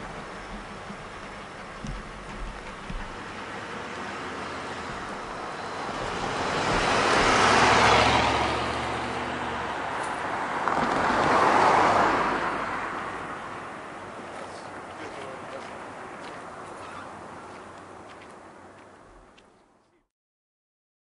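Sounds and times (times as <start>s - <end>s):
vehicles passing close by: 0.0s - 19.9s.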